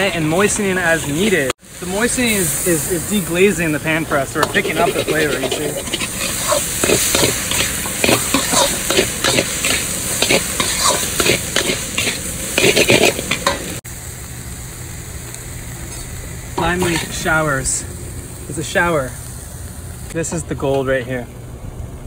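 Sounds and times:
metal spatula scraping wok: 0.0s - 1.5s, 4.0s - 13.8s, 15.8s - 17.4s
frying sizzle: 0.0s - 21.2s.

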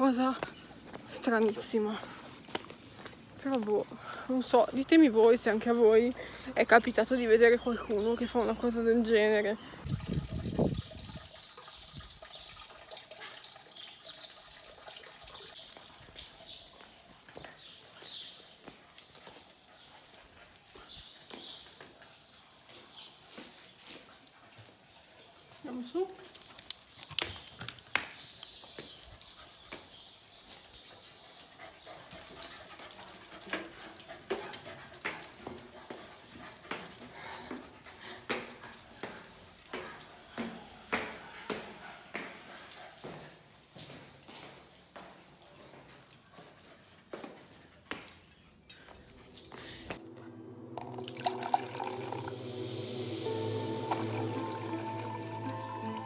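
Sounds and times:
water trickling into metal trough: 9.9s - 16.1s, 50.8s - 52.6s
dog claws tapping on stone stairs: 26.0s - 30.0s, 31.9s - 50.0s.

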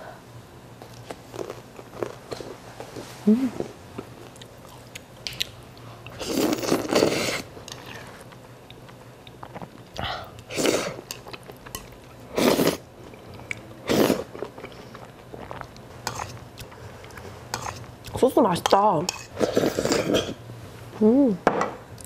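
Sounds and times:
chewing: 0.9s - 2.6s, 7.7s - 12.2s, 14.2s - 18.2s
person slurping noodles: 6.2s - 7.5s, 12.3s - 12.8s, 13.8s - 14.4s, 19.4s - 20.4s.

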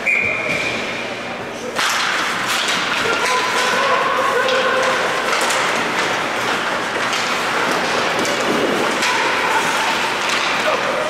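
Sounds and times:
clacks of sticks and puck: 1.7s - 11.0s
skates scraping ice: 1.8s - 11.0s
arena crowd hubbub: 2.8s - 11.0s.

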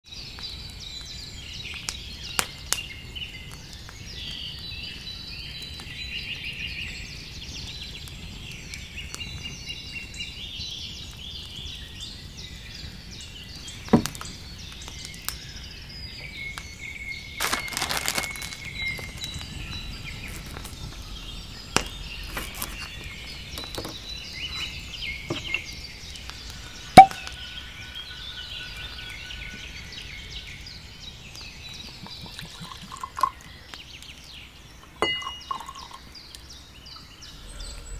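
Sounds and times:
songbirds singing and chirping: 0.0s - 37.9s
sharp pop: 27.0s - 27.4s.

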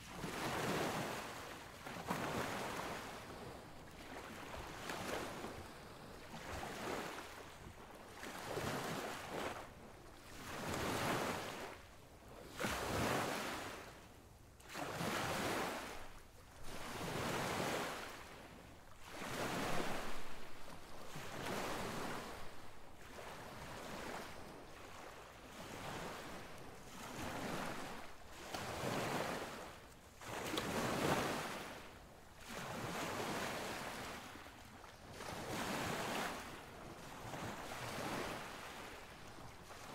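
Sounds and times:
surf washing in: 14.7s - 39.9s.

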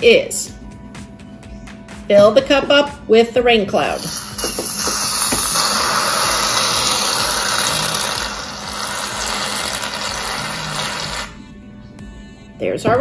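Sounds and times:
aerosol can spraying hiss: 4.0s - 11.3s.

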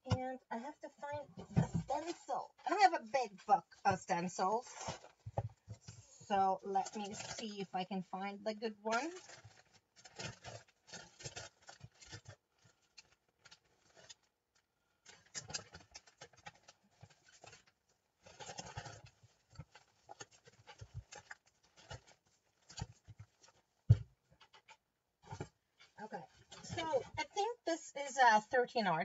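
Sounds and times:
book pages rustling: 9.2s - 14.3s, 15.1s - 27.1s.

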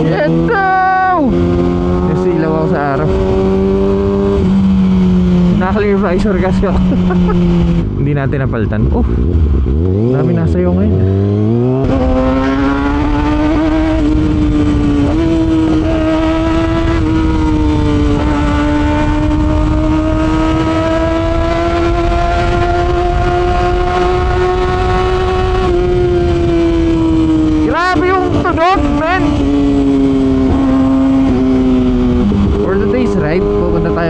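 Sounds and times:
motorcycle engine accelerating: 0.0s - 34.0s
wind rush: 10.9s - 34.0s.

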